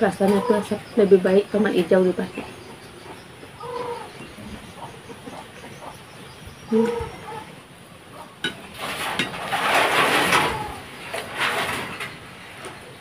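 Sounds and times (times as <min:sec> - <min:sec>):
crackly rustling: 0:08.1 - 0:13.0.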